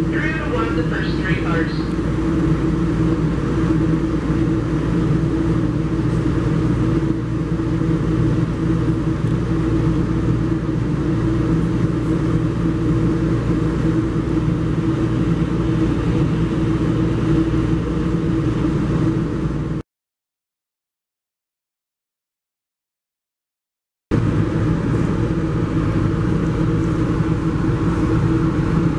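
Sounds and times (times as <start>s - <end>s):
low hum: 0.0s - 19.8s
train wheels rumbling on rail: 0.0s - 19.8s, 24.2s - 28.9s.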